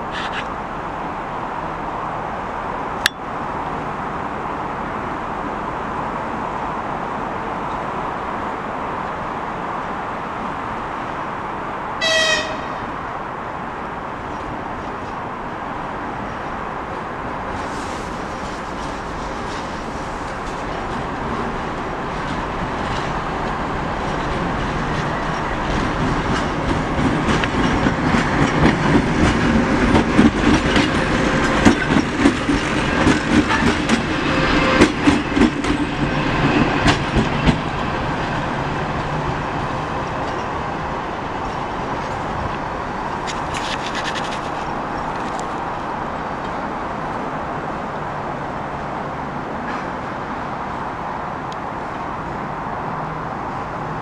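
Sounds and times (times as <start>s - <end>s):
wheels clacking over rail joints: 17.5s - 47.2s.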